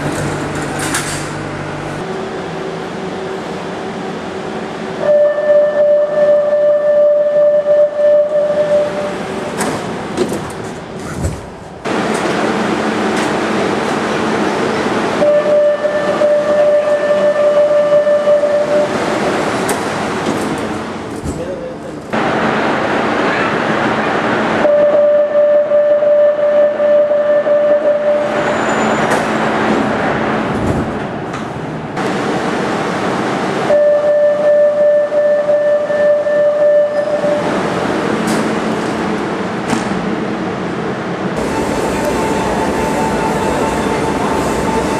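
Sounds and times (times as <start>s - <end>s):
sliding doors shutting: 0.0s - 2.0s, 9.1s - 15.0s, 16.0s - 24.5s, 28.0s - 33.7s, 37.0s - 40.1s, 41.4s - 44.9s
train running noise: 0.0s - 44.9s.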